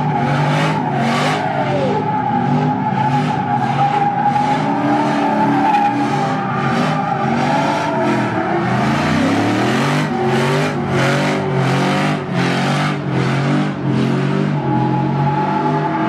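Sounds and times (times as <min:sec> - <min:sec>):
tyres spinning on pavement: 0:00.0 - 0:12.4
truck engines revving: 0:00.0 - 0:16.0.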